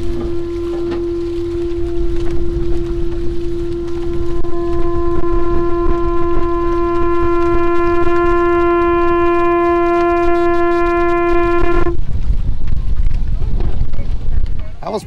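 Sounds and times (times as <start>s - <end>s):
conch shell trumpet note: 0.0s - 12.0s
water noise: 0.0s - 15.0s
wind: 0.0s - 15.0s.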